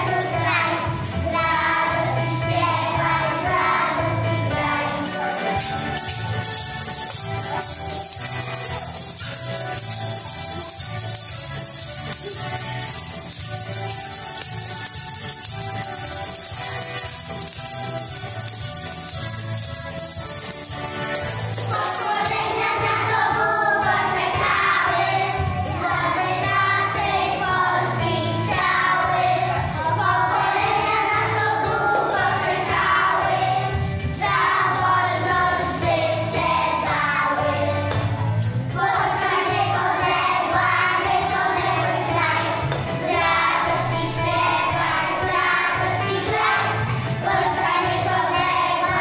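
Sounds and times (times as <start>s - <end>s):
backing music with steady beat: 0.0s - 49.0s
children singing: 0.0s - 49.0s
hand percussion rattling: 5.0s - 23.4s, 43.6s - 45.4s.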